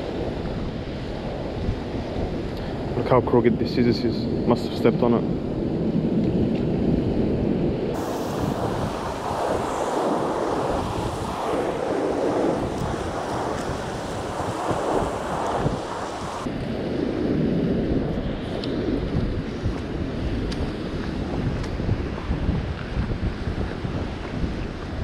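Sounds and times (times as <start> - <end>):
wind buffeting microphone: 0.0 - 25.0
surf washing against rocks: 8.0 - 16.5.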